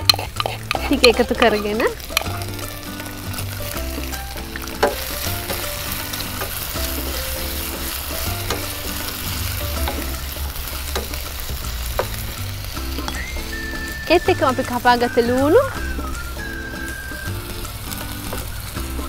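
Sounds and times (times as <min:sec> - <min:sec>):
metal spoon clicking on pan: 0:00.0 - 0:02.5, 0:04.6 - 0:05.6, 0:10.9 - 0:11.3
chicken sizzling in hot oil: 0:00.0 - 0:19.0
soft background music: 0:00.0 - 0:19.0.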